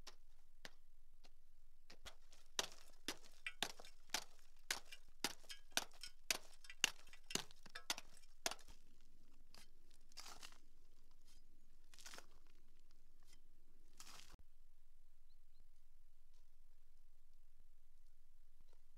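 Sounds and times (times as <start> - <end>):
hammer striking rock: 2.1 - 8.8.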